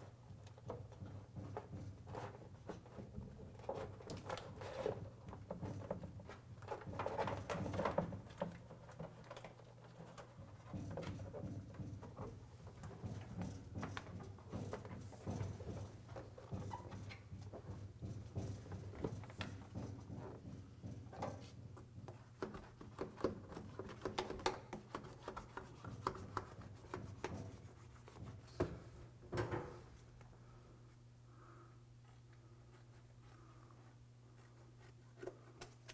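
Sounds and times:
sheet crackling and rubbing on metal: 8.9s - 28.9s
low steady hum: 24.8s - 35.9s.

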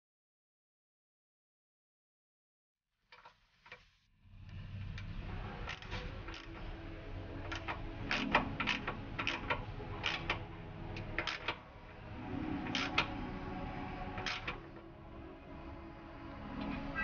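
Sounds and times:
ratchet wrench clicking: 7.5s - 10.4s, 11.2s - 11.6s, 12.7s - 13.1s.

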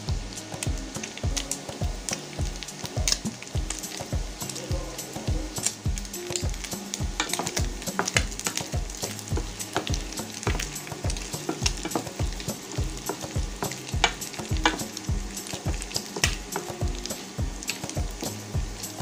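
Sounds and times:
meat sizzling: 0.0s - 19.0s.

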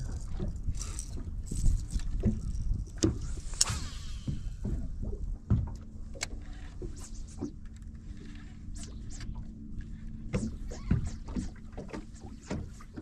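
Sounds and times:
steady low rumble: 0.0s - 13.0s
water lapping against boat hull: 0.0s - 13.0s
fishing rod cast swish: 3.2s - 4.6s.

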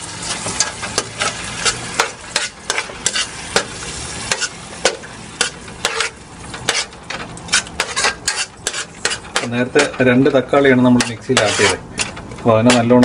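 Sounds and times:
frying sizzle: 0.0s - 13.0s
wooden spoon scraping a pot: 5.4s - 13.0s.

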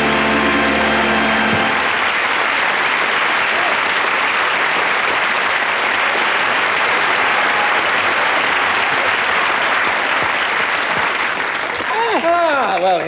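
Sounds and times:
studio audience applauding: 0.0s - 13.0s.

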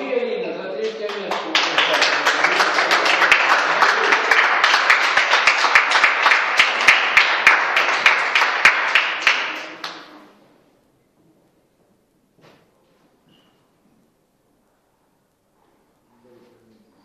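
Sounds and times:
group applauding: 0.7s - 10.4s.

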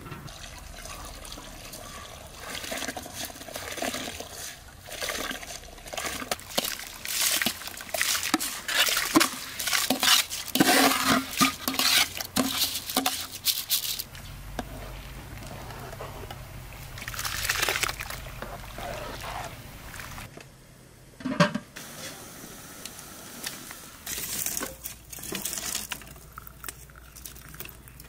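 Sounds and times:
water splashing into pot: 0.3s - 13.2s.

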